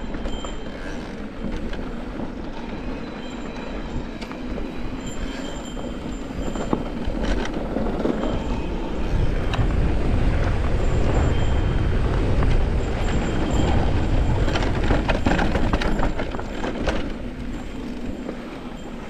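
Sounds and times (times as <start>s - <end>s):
bike rattles and knocks: 0.0s - 19.0s
wind on microphone: 0.0s - 19.0s
tyres rumbling on dirt: 4.6s - 19.0s.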